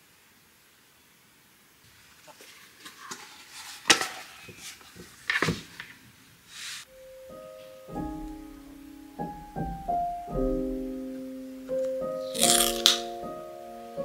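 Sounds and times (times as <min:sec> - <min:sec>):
soft piano music: 0:06.9 - 0:14.0.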